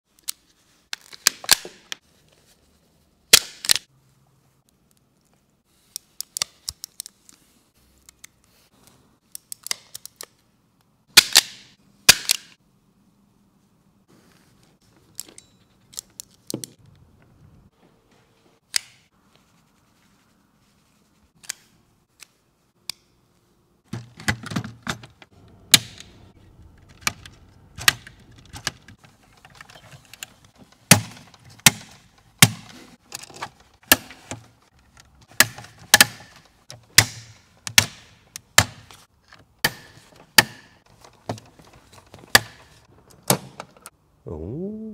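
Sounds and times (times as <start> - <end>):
clicks and knocks of wires: 15.0 - 17.0.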